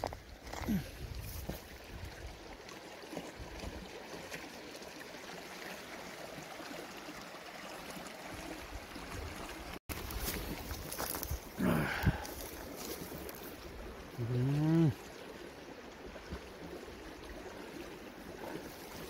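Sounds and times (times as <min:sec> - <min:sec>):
water running in a stream: 0:00.0 - 0:19.0.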